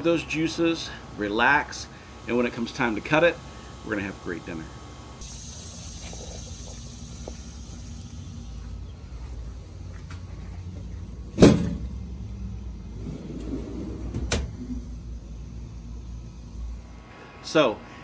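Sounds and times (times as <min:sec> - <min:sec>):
metallic clunk: 0:11.3 - 0:12.0.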